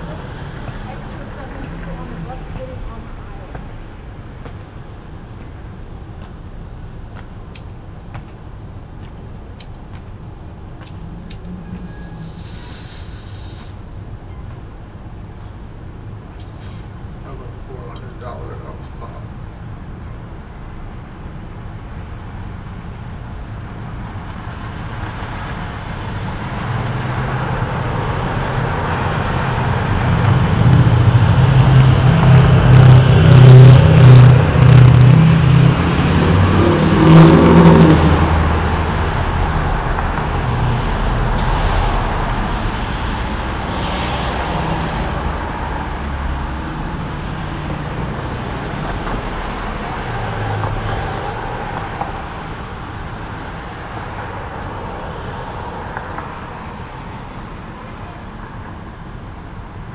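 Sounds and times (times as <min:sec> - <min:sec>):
vehicle engine passing: 0:24.7 - 0:57.2.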